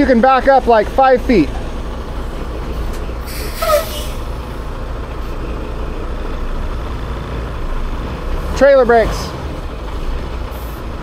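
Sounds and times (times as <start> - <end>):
diesel truck engines rumbling: 0.0 - 11.0
air hiss: 3.2 - 4.3.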